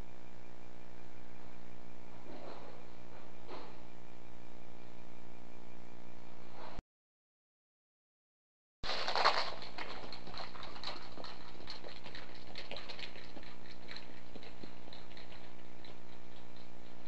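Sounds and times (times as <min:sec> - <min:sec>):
electrical hum and hiss: 0:00.0 - 0:06.8
crackling clicks and ticks: 0:08.9 - 0:17.0.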